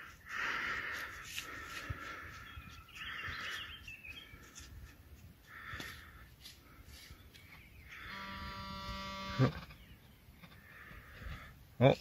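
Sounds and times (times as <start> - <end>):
bird chirping: 2.2 - 5.0, 6.9 - 10.9.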